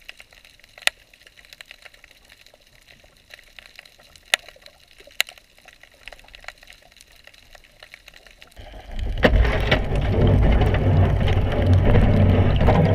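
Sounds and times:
faint underwater clicks and crackles: 0.0 - 12.9
rumbling rush of water: 8.5 - 12.9.

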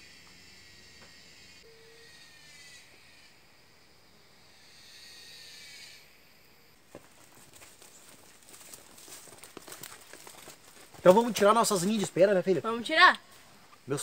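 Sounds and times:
high insect chirring: 0.0 - 14.0
footsteps crunching on dry leaves: 6.9 - 13.6.

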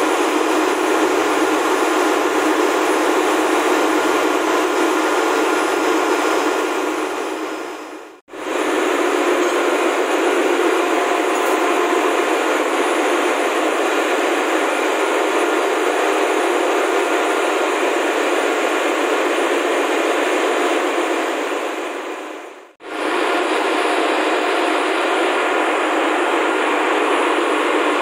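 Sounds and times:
ship engine-room machinery roar: 0.0 - 28.0.

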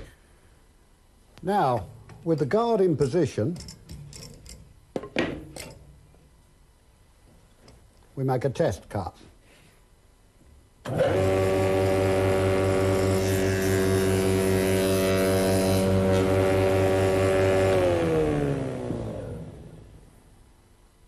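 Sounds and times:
machine running down: 10.9 - 19.9.

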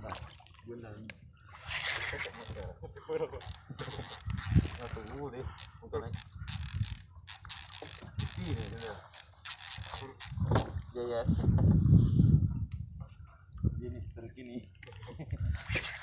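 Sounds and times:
fishing line whining against drag: 1.7 - 2.7, 3.4 - 10.7
fishing reel clicking and buzzing: 2.1 - 2.7, 3.4 - 10.7.

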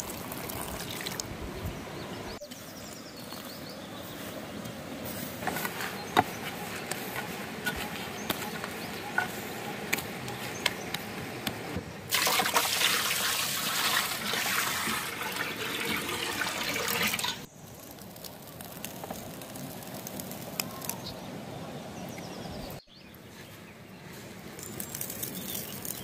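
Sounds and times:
water pouring into metal pot: 0.0 - 1.2, 12.1 - 17.5.

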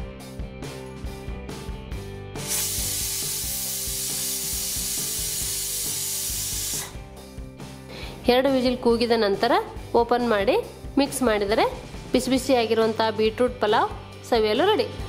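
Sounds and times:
pressure cooker whistle hissing: 2.4 - 7.0.

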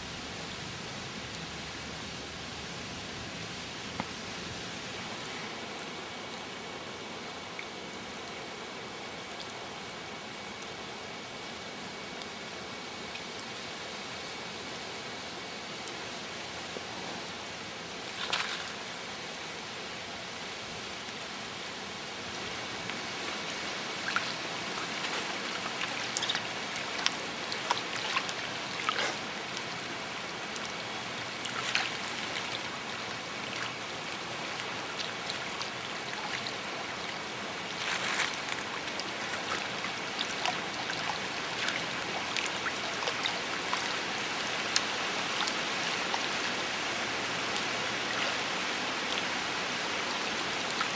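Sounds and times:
water drips and splashes: 3.4 - 14.6, 15.4 - 19.4, 22.1 - 50.9
water trickling: 22.2 - 50.9.

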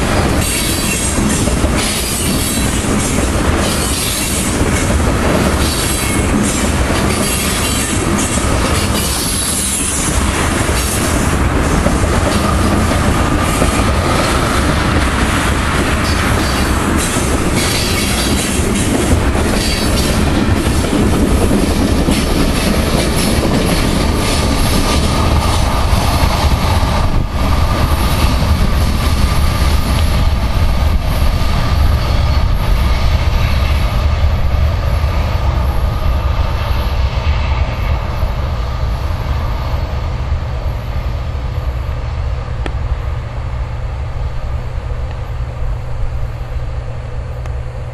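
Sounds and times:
train wheels clacking over rail joints: 0.0 - 31.3.

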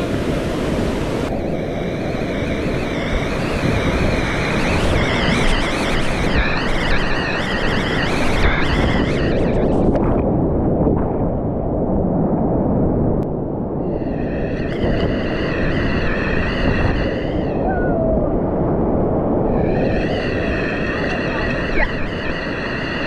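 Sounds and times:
steady high tone: 19.4 - 23.0.

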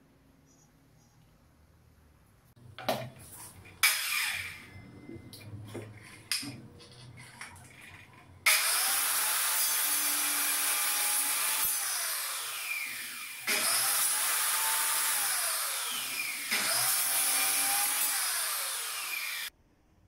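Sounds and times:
circular saw whining: 3.8 - 5.1, 8.5 - 19.5.

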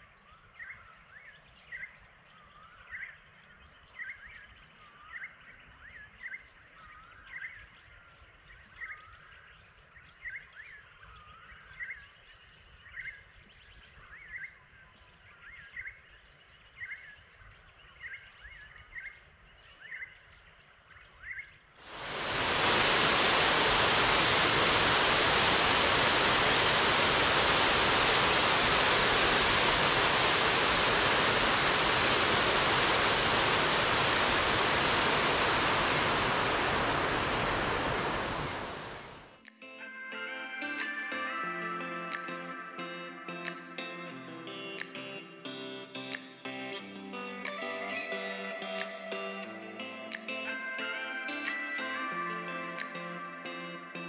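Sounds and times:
faint outdoor hiss: 0.0 - 39.4
water rushing over spillway: 21.8 - 39.3.

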